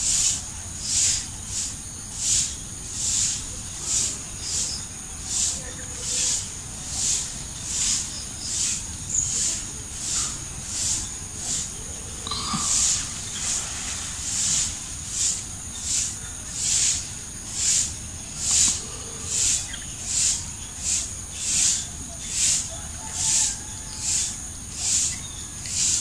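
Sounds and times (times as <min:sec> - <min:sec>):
insect hissing call: 0:00.0 - 0:26.0.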